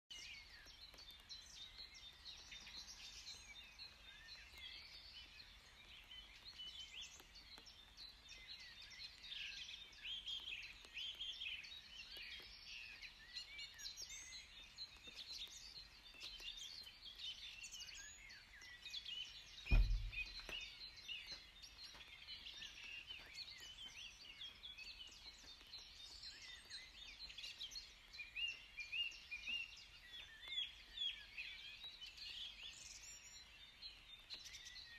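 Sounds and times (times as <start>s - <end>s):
songbirds chorus: 0.1s - 34.9s
low thump: 19.7s - 20.6s.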